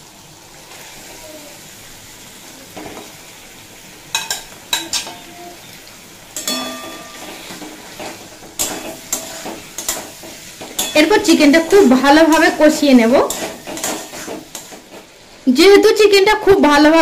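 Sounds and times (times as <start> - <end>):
chicken frying in oil: 0.0 - 17.0
metal spatula scraping pan: 6.4 - 15.0.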